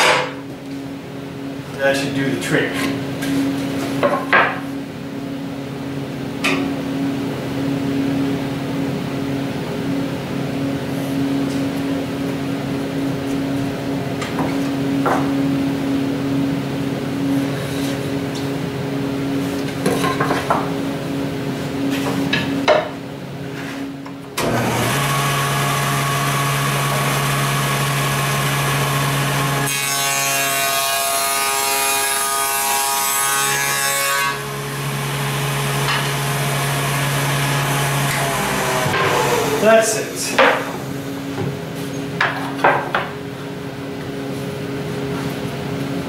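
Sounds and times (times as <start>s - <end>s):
saw blade cutting wood: 24.4s - 40.7s
table saw motor hum: 24.4s - 41.4s.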